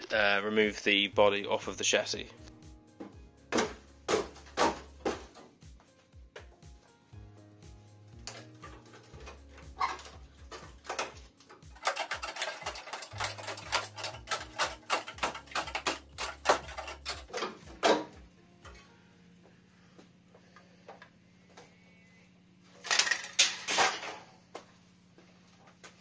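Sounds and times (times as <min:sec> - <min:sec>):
background music with bass: 0:00.0 - 0:19.5
rusted metal crackling and snapping: 0:08.2 - 0:18.8.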